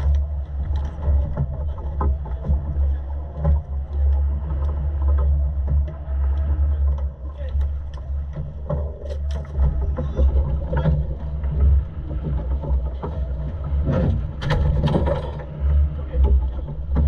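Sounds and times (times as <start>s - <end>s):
boat engine droning: 0.0s - 17.0s
wind on microphone: 0.0s - 17.0s.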